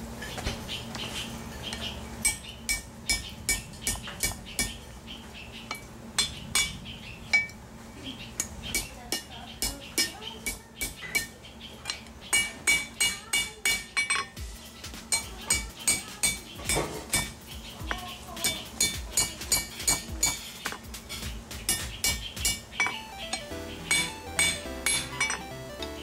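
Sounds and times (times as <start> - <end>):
hammer striking steel on anvil: 2.2 - 4.9, 5.7 - 7.6, 8.4 - 25.5.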